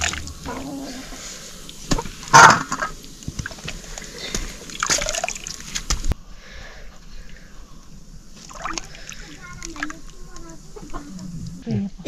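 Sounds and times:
water sloshing and splashing: 0.0s - 6.2s, 8.4s - 10.1s.

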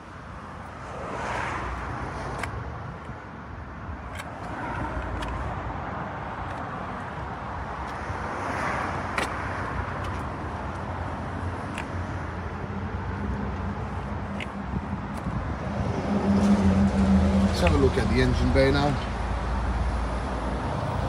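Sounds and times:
road traffic rumbling: 0.0s - 21.0s.

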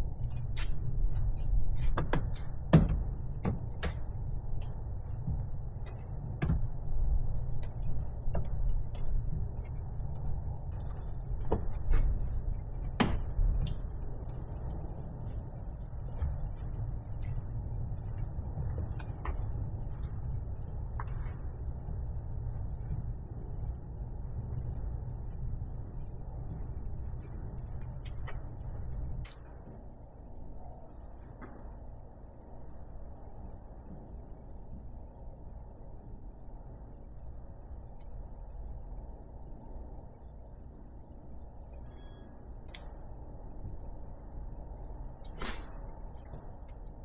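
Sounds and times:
steady low rumble: 0.0s - 47.0s.

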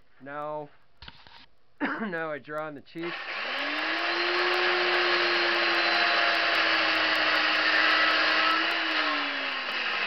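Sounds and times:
chainsaw engine at high throttle: 3.0s - 10.0s.

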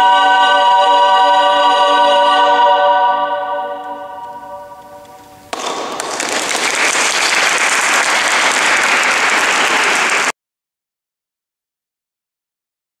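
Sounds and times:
choir singing final chord: 0.0s - 5.3s
audience applause: 5.6s - 10.4s.

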